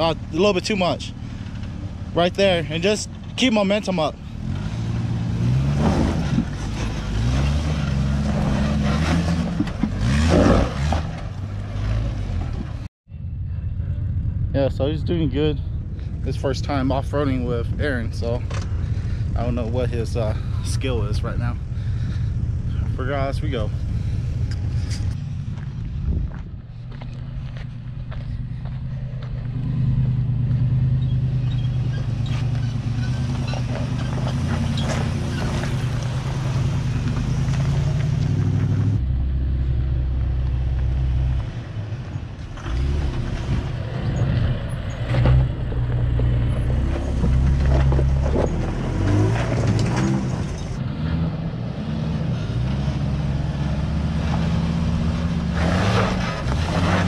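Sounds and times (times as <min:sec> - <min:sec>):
off-road vehicle engine under load: 0:00.0 - 0:57.0.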